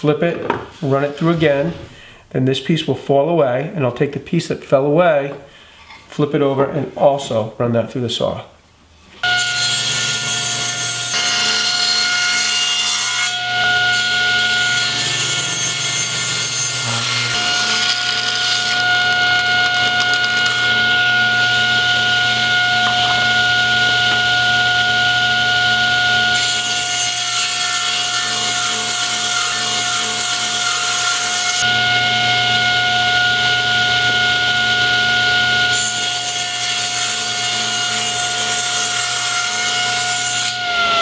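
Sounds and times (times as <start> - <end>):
saw blade cutting wood: 9.2 - 31.8, 35.6 - 41.0
table saw whining: 9.2 - 41.0.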